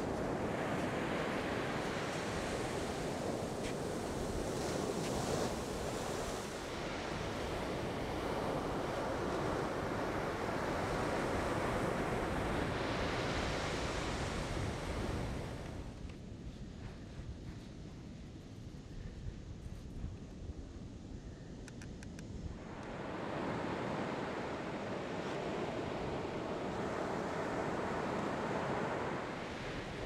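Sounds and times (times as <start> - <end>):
ocean surf breaking on beach: 0.0 - 16.0, 22.6 - 30.0
wind on microphone: 0.0 - 30.0.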